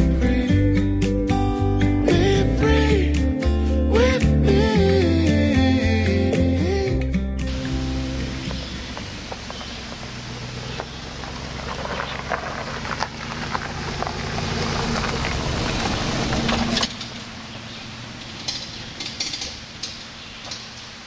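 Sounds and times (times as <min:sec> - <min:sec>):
car engine running: 0:07.5 - 0:21.0
tyres crunching on gravel: 0:07.5 - 0:21.0.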